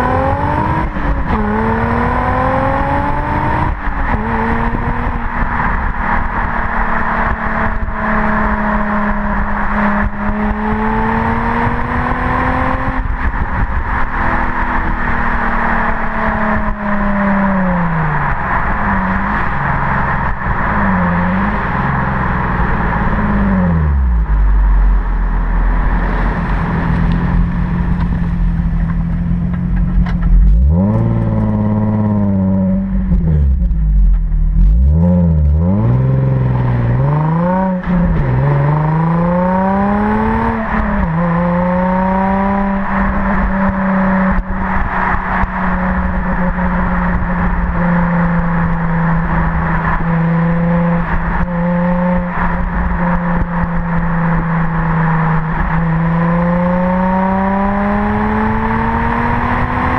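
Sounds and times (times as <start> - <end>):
car exhaust revving: 0.0 - 59.9
wind and road noise: 0.0 - 59.9.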